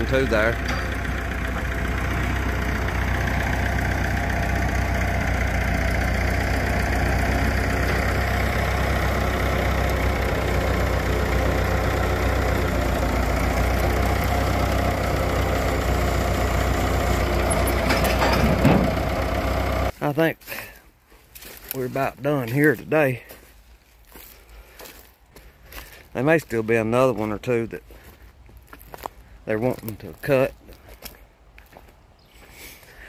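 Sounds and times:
tractor engine running: 0.0s - 20.1s.

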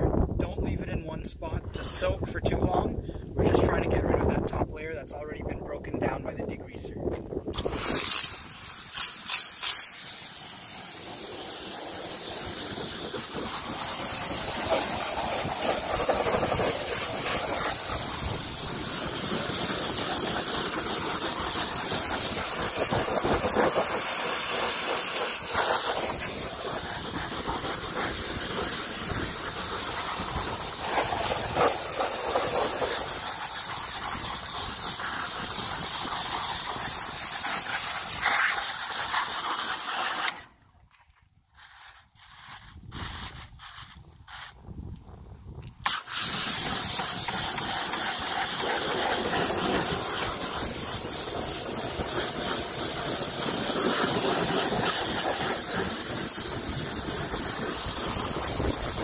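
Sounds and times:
pressure washer jet hissing: 7.6s - 40.5s, 45.8s - 59.0s.

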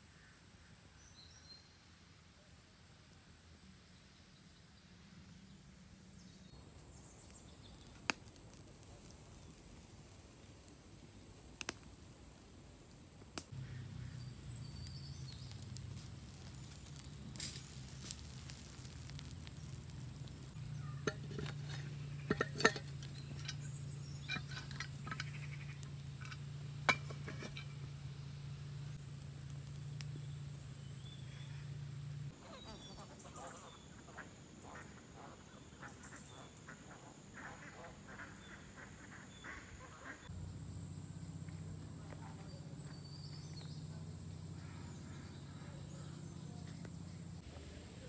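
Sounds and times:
campfire crackling and popping: 6.5s - 32.4s
faint bird calls: 13.5s - 17.8s, 30.9s - 40.3s, 41.3s - 47.4s
steady low hum: 39.7s - 48.0s.

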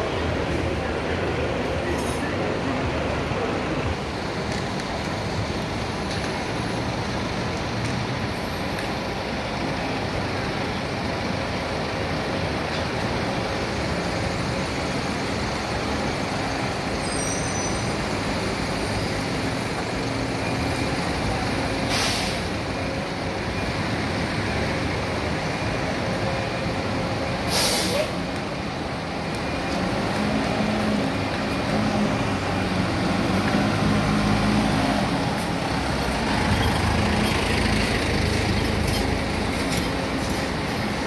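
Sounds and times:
air-brake hisses: 21.8s - 22.5s, 27.4s - 28.2s.

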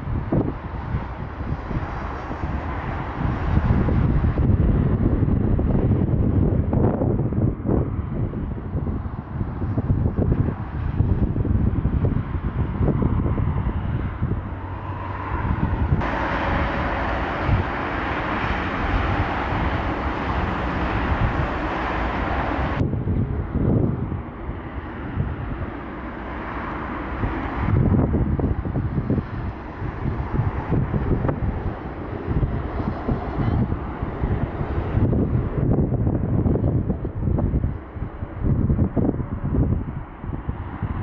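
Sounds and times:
gusty wind on microphone: 0.0s - 41.0s
jet airliners: 0.0s - 41.0s
jet engine hiss: 14.7s - 22.8s.

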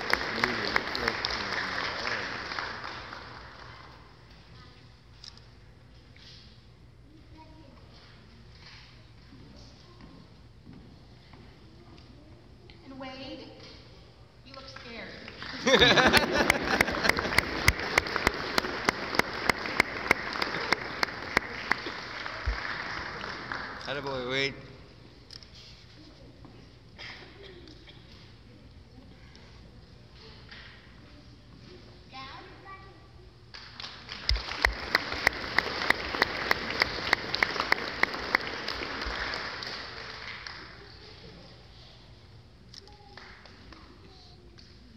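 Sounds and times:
audience applauding: 0.0s - 4.0s, 15.3s - 24.4s, 33.6s - 41.0s
close person clapping steadily: 0.0s - 4.0s, 15.3s - 23.9s, 33.5s - 40.8s
sharp close claps: 33.5s - 40.7s.

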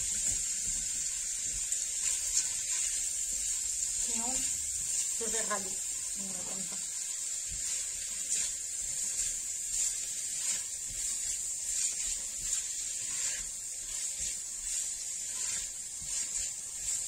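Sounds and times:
onions sizzling in a pan: 0.0s - 17.0s
stirring scraping and knocks: 0.0s - 17.0s.

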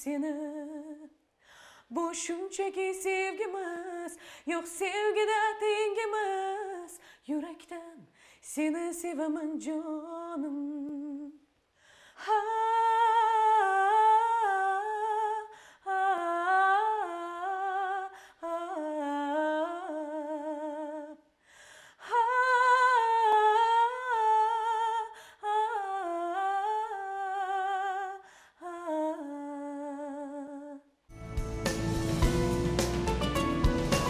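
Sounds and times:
woman singing wordless melody: 0.0s - 1.2s, 1.8s - 11.5s, 12.2s - 31.0s
woman breathing: 1.3s - 1.9s, 4.2s - 4.5s, 11.7s - 12.2s, 15.5s - 15.8s, 21.4s - 22.0s, 25.1s - 25.4s, 28.2s - 28.6s.

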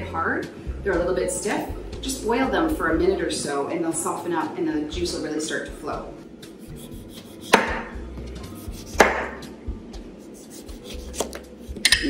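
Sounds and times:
knife chopping on cutting board: 7.3s - 7.9s, 8.7s - 9.4s, 10.5s - 11.5s.

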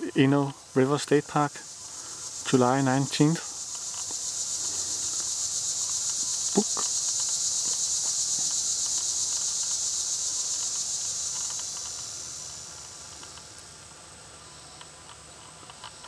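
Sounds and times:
insect chorus buzzing: 0.0s - 16.0s.

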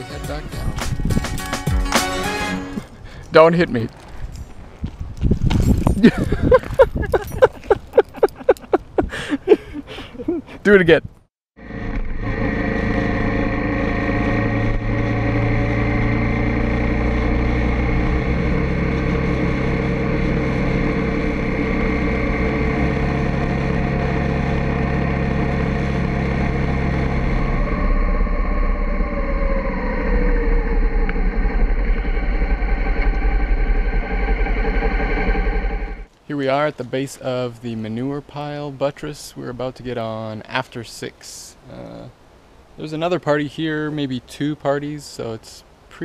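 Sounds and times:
motorcycle engine running: 11.6s - 36.1s.

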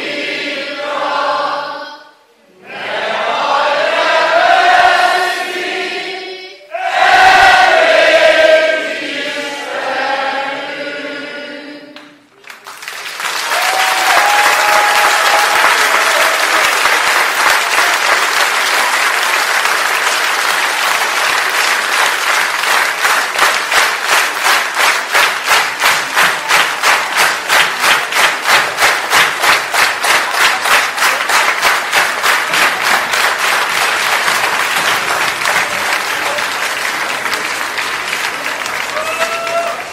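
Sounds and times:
crowd singing together: 0.0s - 12.3s
rhythmic clapping in unison: 11.9s - 39.9s
applause and cheering: 12.4s - 39.9s.

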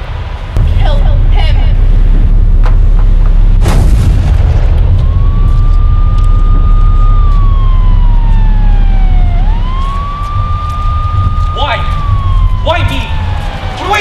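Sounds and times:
loud low rumble: 0.0s - 14.0s
sharp crack: 2.6s - 7.5s
police siren wailing: 4.6s - 14.0s.

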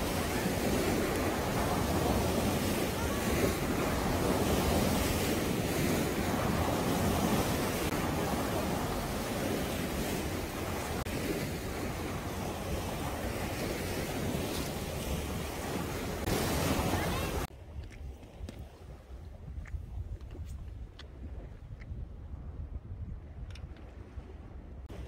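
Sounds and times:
waves breaking over rocks: 0.0s - 17.6s
wind on microphone: 0.0s - 25.0s.

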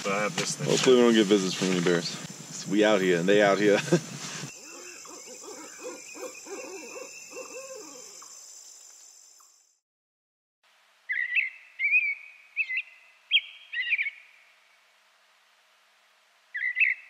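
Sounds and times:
owl hooting: 4.5s - 8.3s, 16.6s - 17.0s
small bird chirping: 4.5s - 8.8s.

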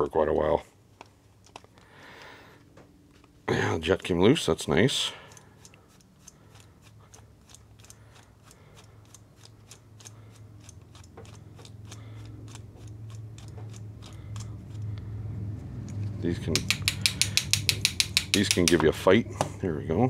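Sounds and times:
ratcheting screwdriver clicking: 5.3s - 14.5s, 16.5s - 18.8s.

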